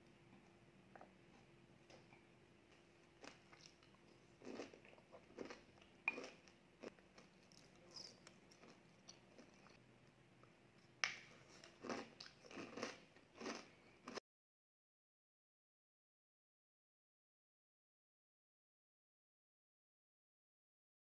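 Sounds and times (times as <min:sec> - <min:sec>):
person chewing and crunching food: 0:00.3 - 0:09.8, 0:10.8 - 0:14.2.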